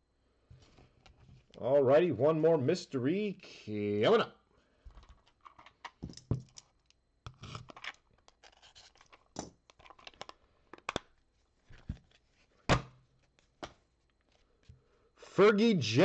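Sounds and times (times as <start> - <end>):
cards rustling and clicking: 7.3 - 12.5.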